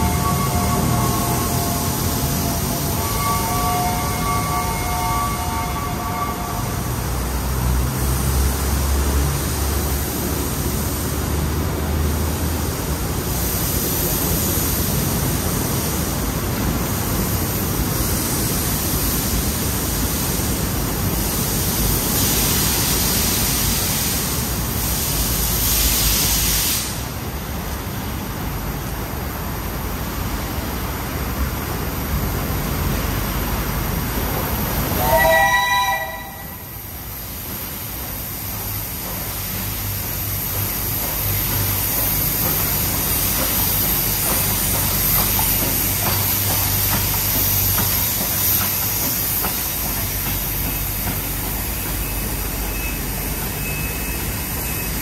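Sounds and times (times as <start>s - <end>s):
steam whistle chord: 0.0s - 7.0s, 35.0s - 36.9s
steam locomotive hiss and rumble: 0.0s - 55.0s.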